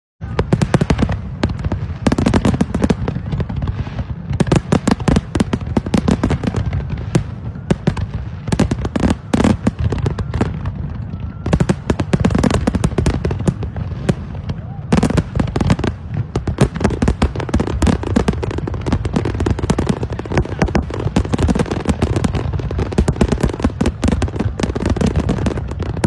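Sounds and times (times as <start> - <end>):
fireworks bursting and crackling: 0.2 - 26.0.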